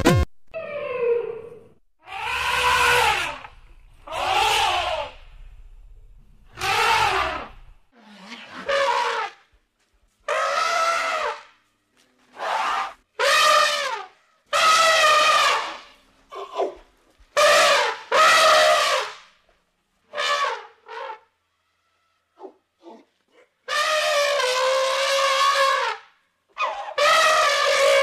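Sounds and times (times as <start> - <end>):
elephant trumpeting: 2.0 - 5.4, 6.5 - 9.4, 10.3 - 11.4, 12.4 - 15.9, 17.4 - 19.1, 23.7 - 26.0, 26.6 - 28.0.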